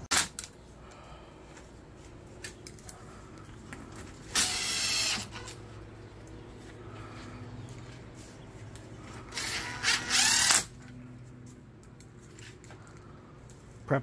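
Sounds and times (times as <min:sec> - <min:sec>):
faint low hum: 0:00.2 - 0:14.0.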